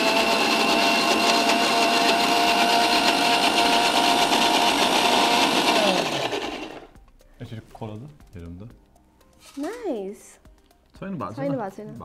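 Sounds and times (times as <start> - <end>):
mixer grinder motor whine: 0.0 - 7.0.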